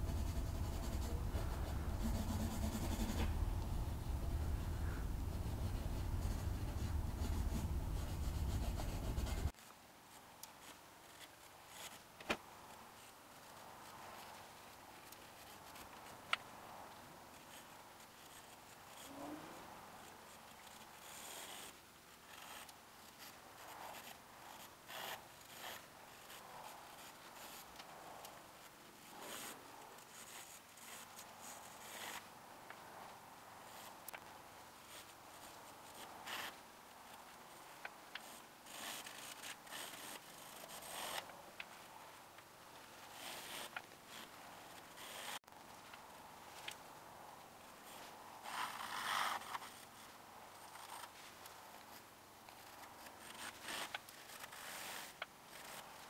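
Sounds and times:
pencil scratching on paper: 0:00.0 - 0:09.6, 0:18.2 - 0:19.1, 0:20.3 - 0:21.7, 0:22.3 - 0:27.7, 0:29.1 - 0:32.2, 0:33.7 - 0:33.9, 0:34.9 - 0:36.6, 0:38.2 - 0:41.2, 0:43.1 - 0:44.3, 0:45.0 - 0:45.4, 0:52.6 - 0:55.8.

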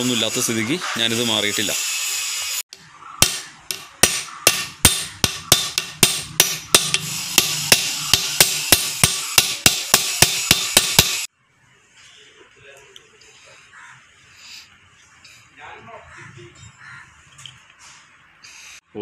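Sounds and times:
hammer striking steel: 0:02.7 - 0:11.3.

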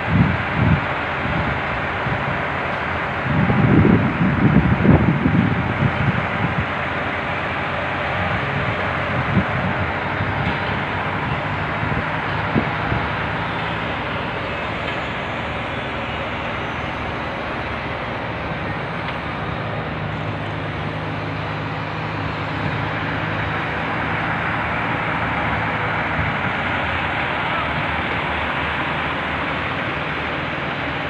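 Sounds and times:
heavy machinery engine running: 0:00.0 - 0:31.0.

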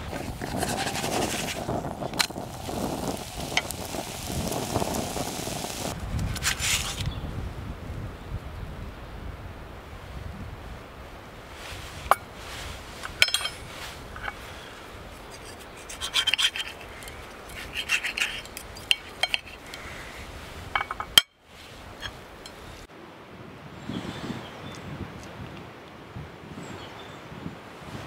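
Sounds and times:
cutlery scraping a ceramic plate: 0:15.3 - 0:19.6.

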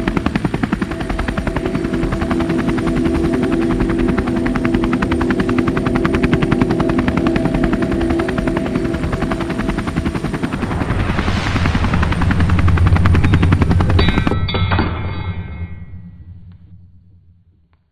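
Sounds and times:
helicopter rotor chopping: 0:00.0 - 0:14.6
engine drone: 0:00.8 - 0:17.6
rushing swell: 0:09.4 - 0:17.4.

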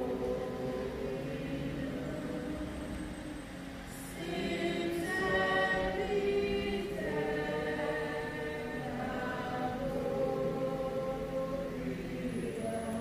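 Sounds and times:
choir singing long notes: 0:00.0 - 0:13.0.

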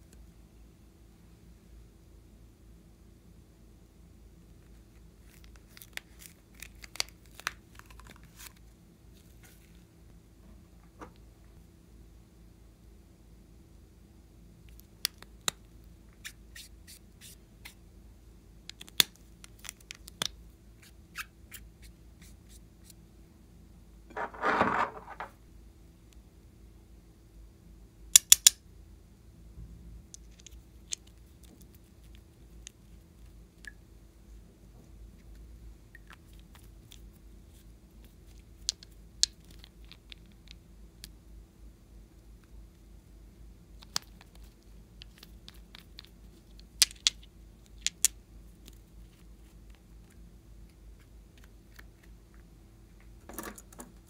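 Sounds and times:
plastic toy bottles clattering: 0:24.1 - 0:25.4.

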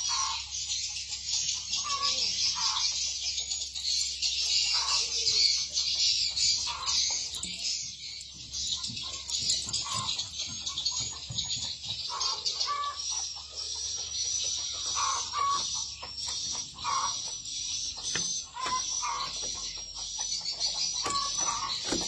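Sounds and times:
padlock clicking: 0:21.0 - 0:22.0.

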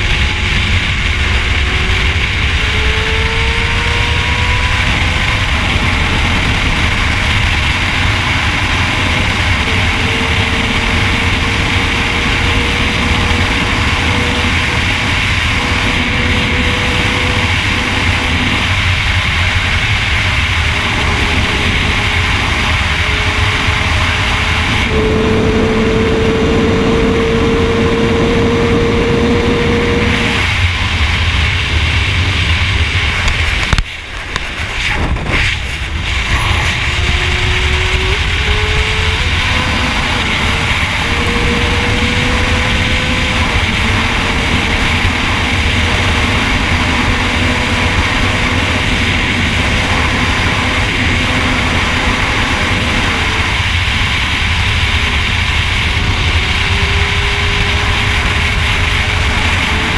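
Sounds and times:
motorbike engine running at speed: 0:00.0 - 0:59.9
wind rush: 0:00.0 - 0:59.9.

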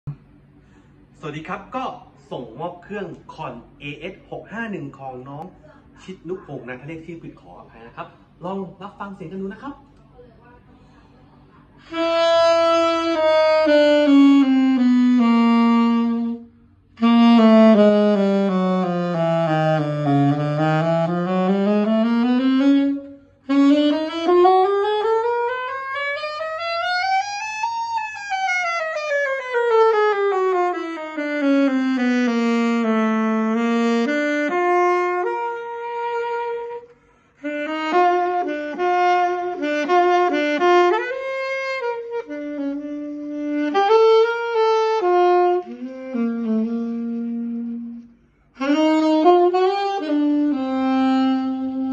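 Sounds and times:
alto saxophone playing scales: 0:11.8 - 0:51.9.

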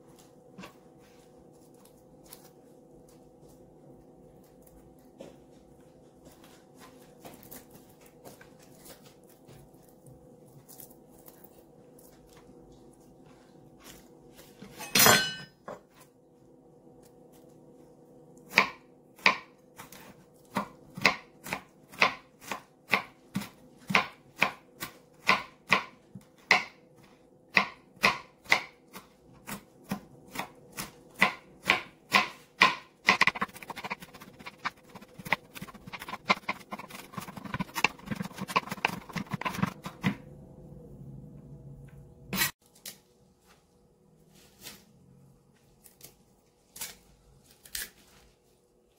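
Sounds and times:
faint steady hum: 0:00.0 - 0:48.9
knife chopping on plastic board: 0:18.5 - 0:26.8, 0:27.5 - 0:40.2.

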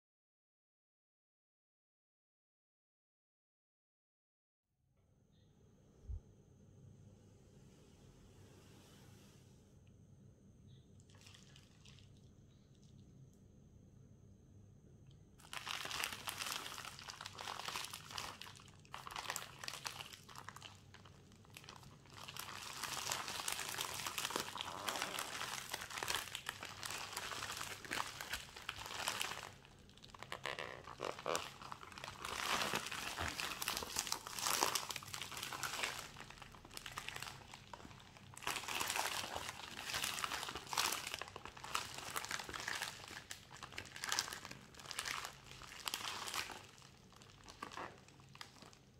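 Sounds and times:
plastic packaging crinkling: 0:11.1 - 0:12.2, 0:15.4 - 0:48.9.

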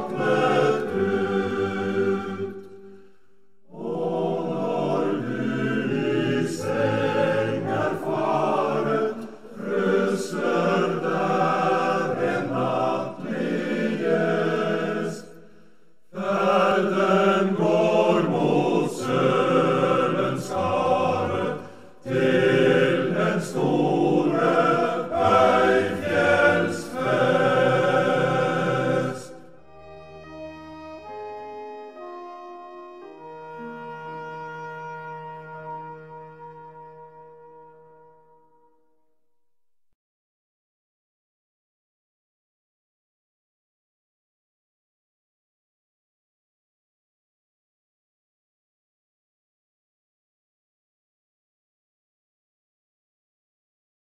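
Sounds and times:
choir singing: 0:00.0 - 0:03.0, 0:03.6 - 0:15.5, 0:16.1 - 0:30.4.

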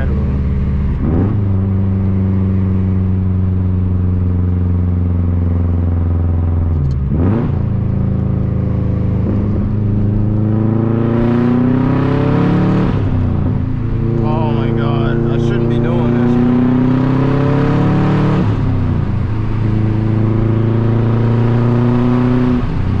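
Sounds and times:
car engine and loud exhaust droning: 0:00.0 - 0:23.0.

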